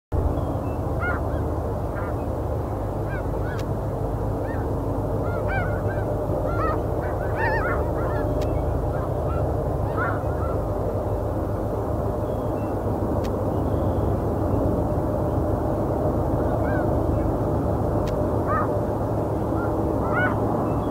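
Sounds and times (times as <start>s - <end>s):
steady low rumble: 0.1s - 20.9s
geese honking: 0.9s - 3.7s, 4.4s - 11.2s, 16.4s - 17.4s, 18.0s - 20.9s.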